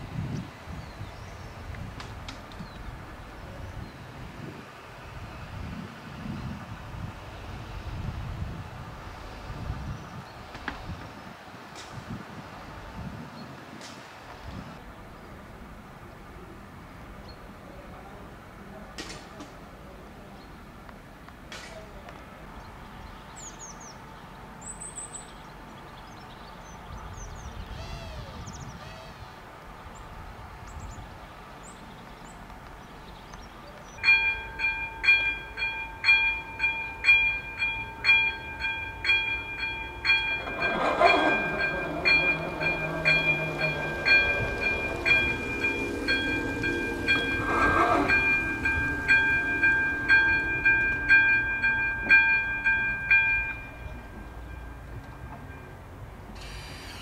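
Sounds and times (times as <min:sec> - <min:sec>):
level crossing warning bell: 0:34.0 - 0:56.4.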